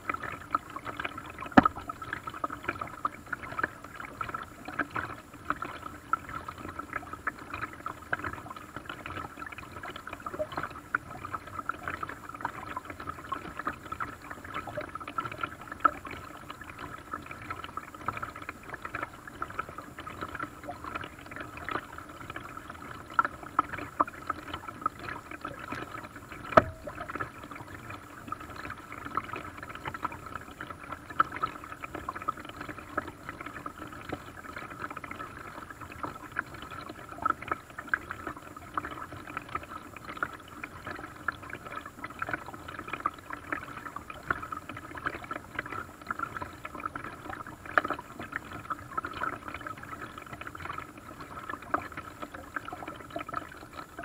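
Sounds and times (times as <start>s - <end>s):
water dripping: 0.1s - 34.8s
paddle splashing water: 0.8s - 3.7s, 25.9s - 27.6s
sharp knock: 26.6s - 26.9s.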